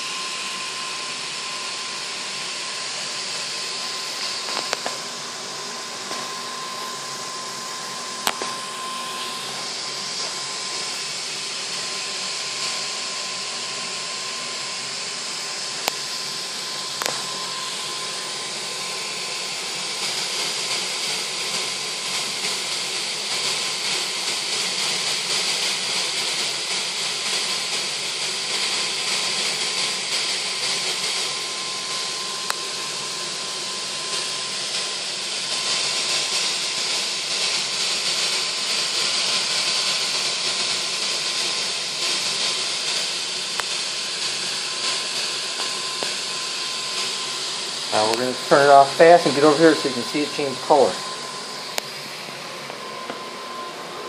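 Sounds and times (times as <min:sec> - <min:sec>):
gas burner flames hissing: 0:00.0 - 0:54.0
faint steady whistle: 0:06.1 - 0:15.0.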